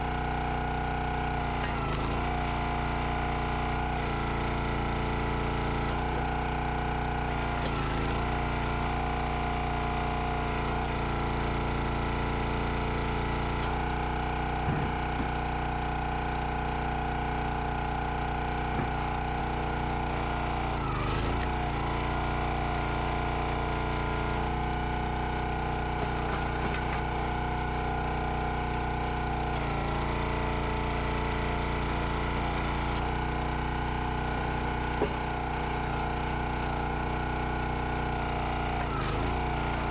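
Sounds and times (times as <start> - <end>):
small gas engine running: 0.0 - 39.9
wood cracking and splintering: 21.0 - 28.1.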